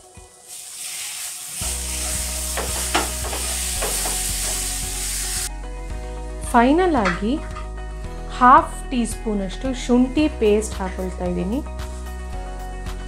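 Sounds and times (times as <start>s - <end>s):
filling sizzling in a pan: 0.0s - 5.5s.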